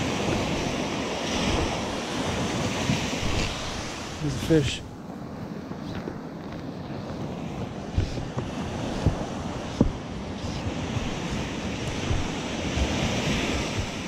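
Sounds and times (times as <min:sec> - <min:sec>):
surf washing up beach: 0:00.0 - 0:14.0
wind on microphone: 0:00.0 - 0:14.0.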